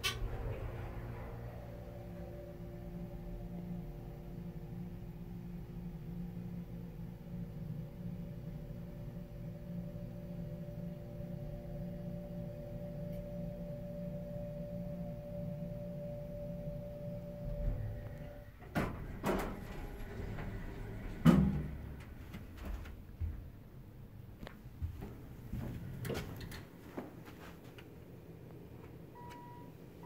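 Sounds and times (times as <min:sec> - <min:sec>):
hydraulic elevator hum: 0:00.0 - 0:26.8
elevator doors thump: 0:17.5 - 0:23.6.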